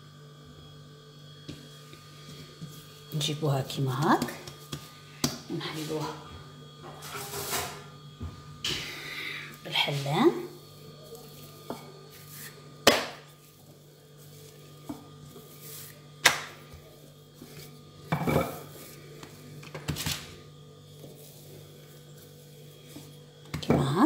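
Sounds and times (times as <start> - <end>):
rolling pin rolling dough: 10.7 - 24.0.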